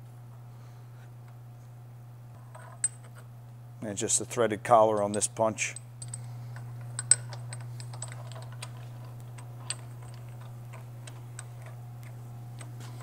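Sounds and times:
steady low hum: 0.0 - 13.0
small metal clicks: 6.0 - 13.0.

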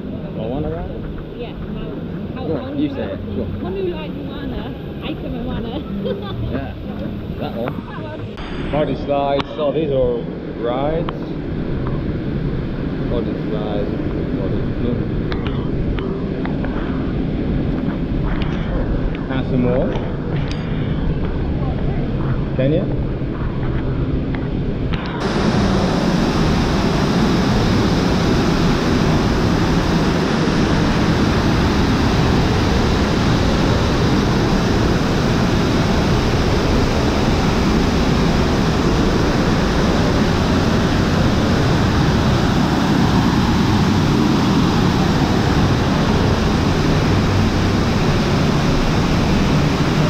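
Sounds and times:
waterfall rushing: 25.2 - 50.0.

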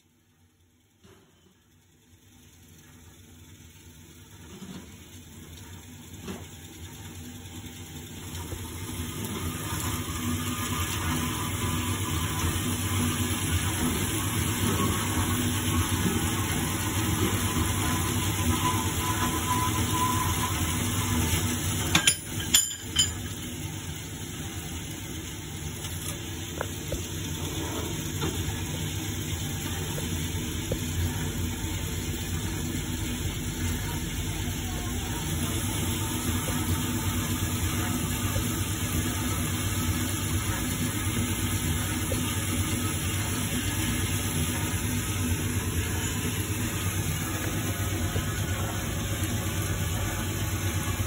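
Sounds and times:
sharp metallic clanks: 21.9 - 23.2.

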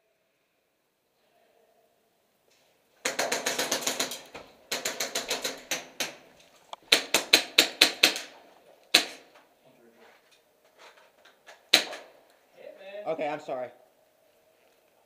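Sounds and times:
airsoft gun shots: 3.0 - 6.3, 6.9 - 9.3, 11.7 - 12.2.

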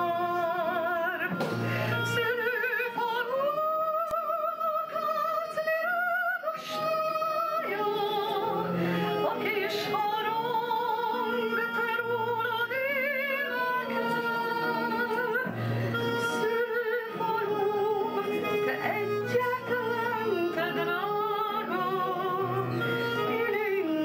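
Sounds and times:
woman singing into a microphone: 0.0 - 24.0.

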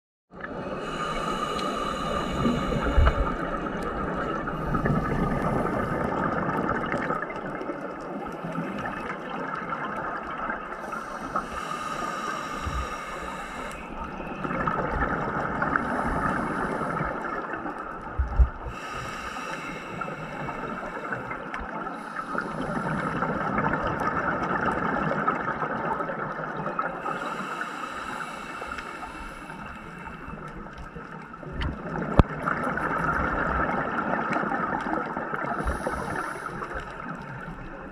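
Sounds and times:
underwater rushing and gurgling: 0.3 - 37.9
hiss: 0.8 - 3.5, 10.8 - 14.0, 27.1 - 30.2, 35.6 - 36.9.

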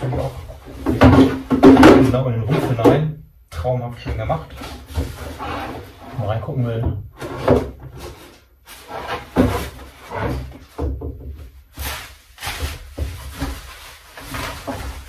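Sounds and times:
bumps on wooden workbench: 0.0 - 2.2
packaging rustling and knocking: 0.0 - 2.2, 7.4 - 15.0.

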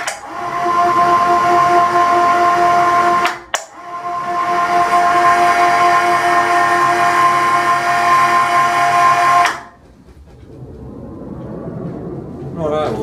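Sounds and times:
electric hoist motor whining: 0.0 - 9.8.

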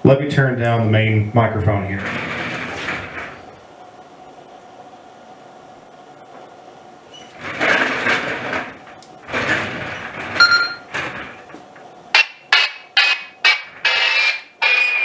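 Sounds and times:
handheld radio keypad beeps: 10.4 - 10.9.

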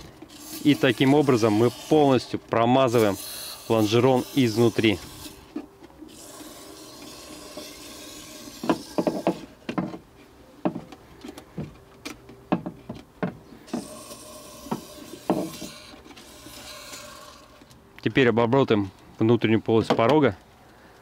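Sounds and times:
aerosol can hissing: 2.9 - 5.5, 6.1 - 9.6, 13.7 - 17.5.

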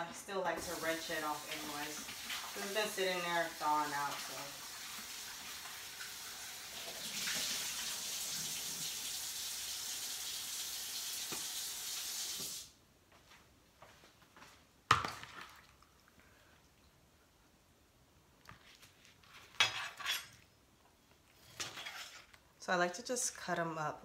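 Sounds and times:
faucet running into sink: 0.6 - 12.6.

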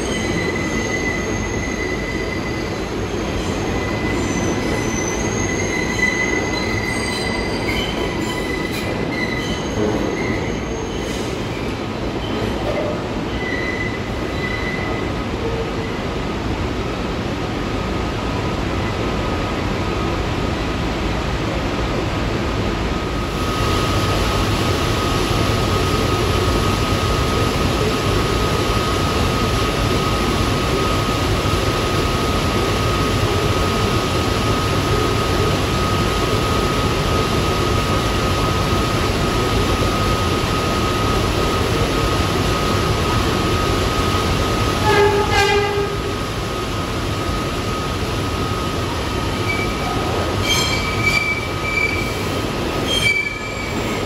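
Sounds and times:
train wheels squealing: 0.0 - 15.1, 49.3 - 54.0
subway train rumble and whine: 0.0 - 54.0
train horn blast: 44.8 - 46.1.

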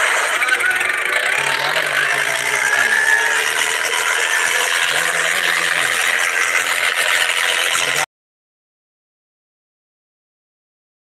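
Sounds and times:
tractor diesel engines under load: 0.0 - 8.1.

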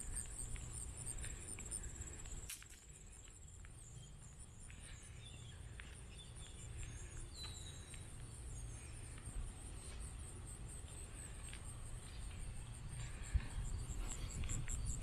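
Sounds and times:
insects trilling: 0.0 - 15.0
bird chirps: 3.8 - 9.0.

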